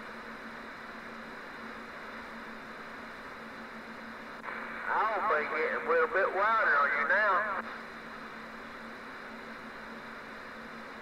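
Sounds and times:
low hum: 0:02.9 - 0:11.0
radio static hiss: 0:04.2 - 0:11.0.

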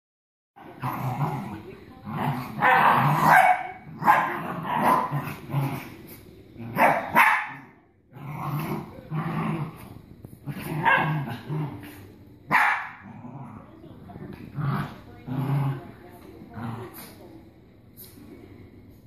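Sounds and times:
dogs growling: 0:00.6 - 0:17.2.

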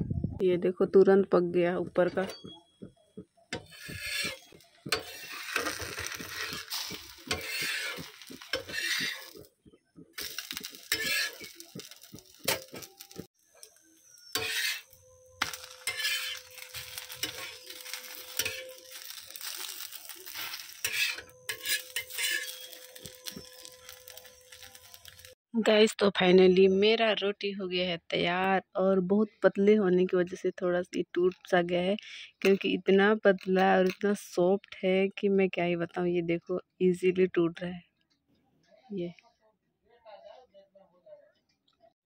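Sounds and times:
metal spatula scraping pan: 0:03.6 - 0:09.4, 0:10.2 - 0:13.1, 0:14.2 - 0:25.4
crepe sizzling in oil: 0:03.6 - 0:09.5, 0:10.2 - 0:25.4.

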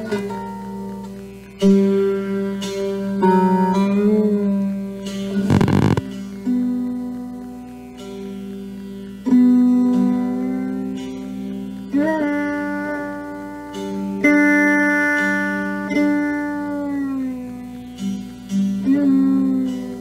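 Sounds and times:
plucked string notes sliding: 0:05.3 - 0:06.6.

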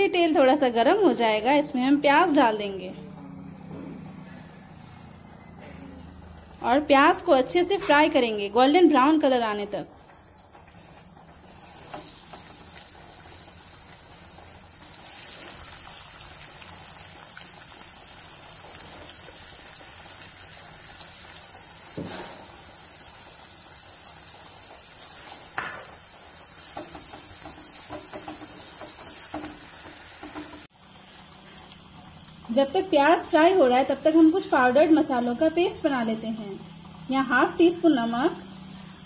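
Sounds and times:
onions sizzling in hot oil: 0:07.0 - 0:39.0
spoon knocking against pan: 0:26.6 - 0:30.7.

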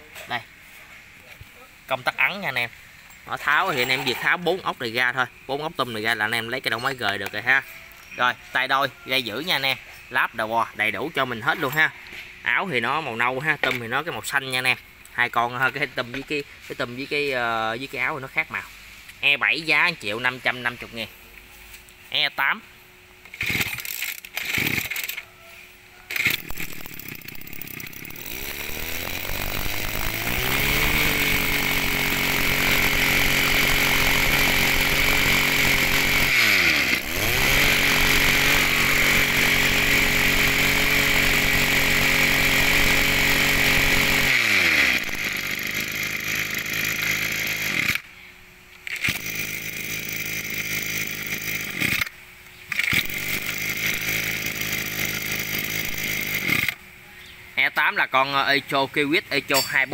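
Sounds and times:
pull-start cord yanks: 0:23.2 - 0:25.2, 0:26.1 - 0:48.0, 0:48.8 - 0:52.1, 0:52.7 - 0:56.8
small two-stroke engine running: 0:23.3 - 0:25.2, 0:26.1 - 0:48.1, 0:48.8 - 0:56.8.

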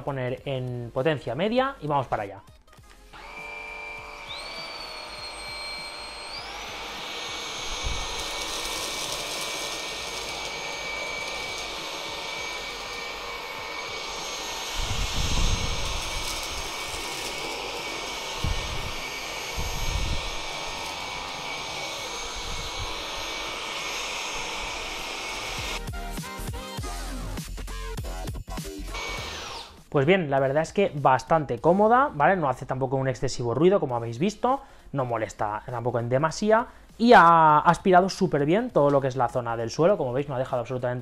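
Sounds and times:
stick vacuum whining: 0:03.1 - 0:25.9, 0:28.8 - 0:29.9.

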